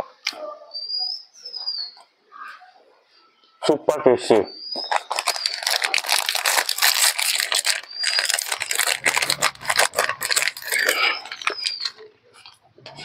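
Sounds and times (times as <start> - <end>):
plastic wrapper crinkling: 4.8 - 12.6.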